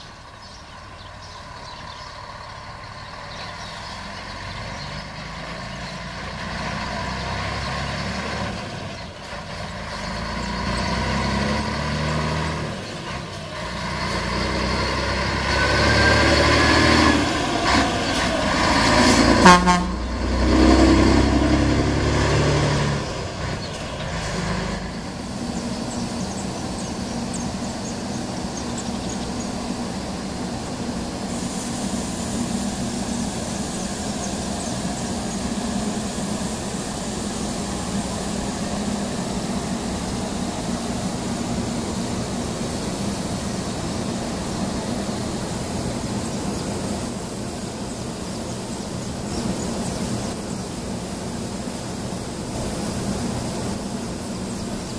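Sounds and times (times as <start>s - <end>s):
steady high hiss: 0.0s - 54.9s
truck diesel engine passing: 0.0s - 54.9s
machinery hum: 12.6s - 54.9s.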